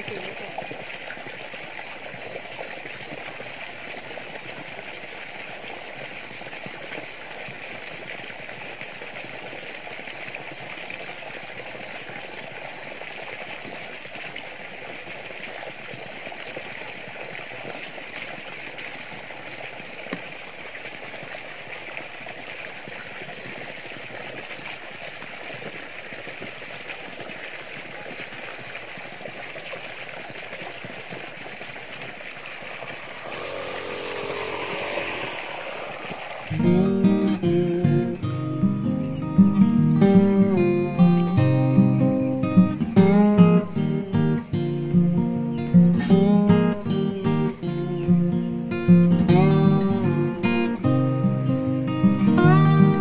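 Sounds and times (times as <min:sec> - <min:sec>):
water pouring into plastic bucket: 0:23.6 - 0:37.3.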